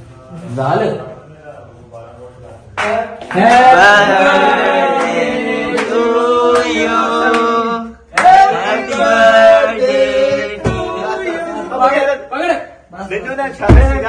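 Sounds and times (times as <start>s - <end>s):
voices singing held notes: 2.8s - 12.2s.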